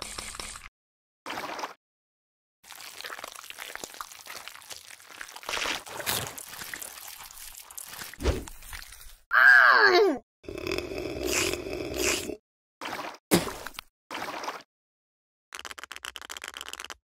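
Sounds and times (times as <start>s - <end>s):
wet squelching and slurping: 1.3s - 1.8s, 2.6s - 9.3s, 10.8s - 14.7s
cartoon groan falling in pitch: 9.3s - 10.2s.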